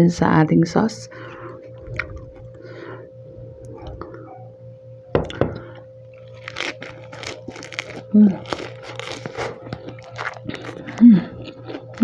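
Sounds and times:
faint steady hum: 0:00.0 - 0:12.0
lettuce crunching: 0:01.7 - 0:02.6, 0:05.2 - 0:12.0.

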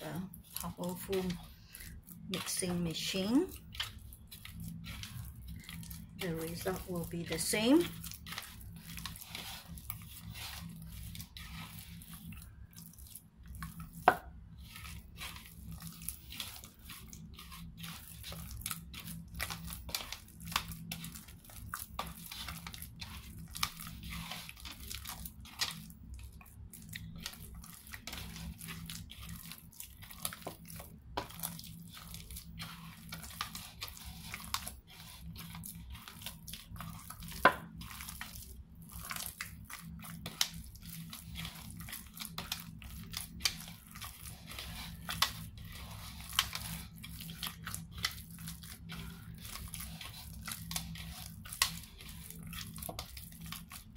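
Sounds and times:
dough squishing and tearing: 0:00.0 - 0:53.9.

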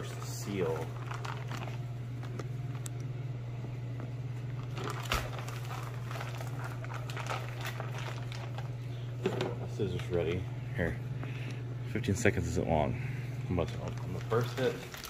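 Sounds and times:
steady low hum: 0:00.0 - 0:15.0
plastic bag crinkling: 0:00.2 - 0:02.9, 0:04.5 - 0:09.1, 0:13.6 - 0:15.0.

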